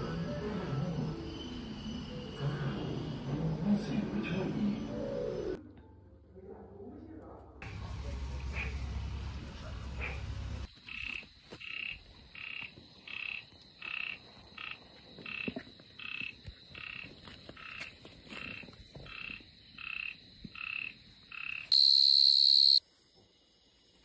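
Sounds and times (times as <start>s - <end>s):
frog croaking: 10.0s - 22.8s
loud high steady tone: 21.7s - 22.8s.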